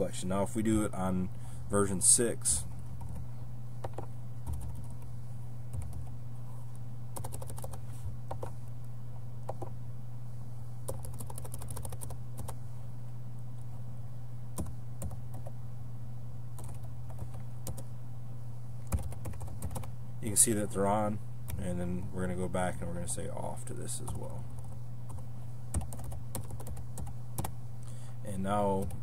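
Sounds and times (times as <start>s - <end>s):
computer keyboard typing clicks: 7.2s - 8.5s, 10.9s - 12.6s, 18.8s - 19.9s, 25.8s - 27.5s.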